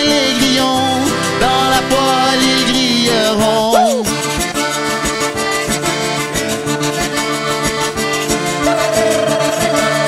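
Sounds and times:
accordion playing tune: 0.0 - 10.0
strummed acoustic guitar: 0.0 - 10.0
scraped rubboard beat: 3.5 - 4.5, 8.6 - 10.0.

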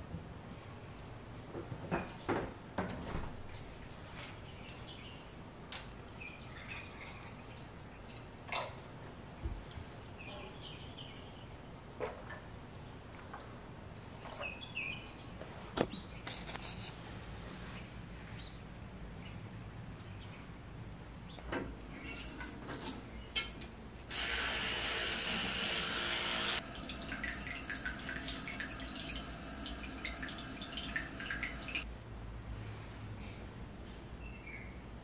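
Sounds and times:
tap running into basin: 26.6 - 31.8.

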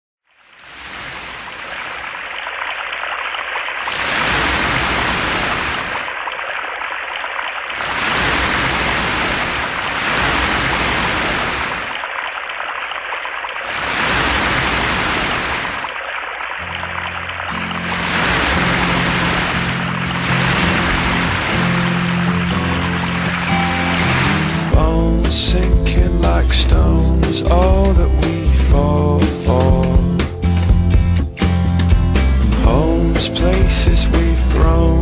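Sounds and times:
ocean waves rushing: 0.4 - 30.0
low musical tone: 16.7 - 31.4.

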